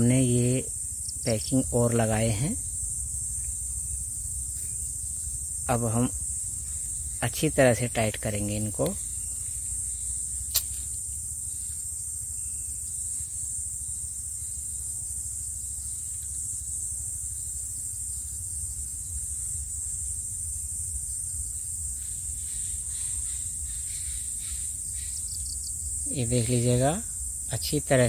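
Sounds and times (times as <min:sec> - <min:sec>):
high-pitched hiss: 0:00.0 - 0:28.0
sharp metallic click: 0:10.5 - 0:10.9.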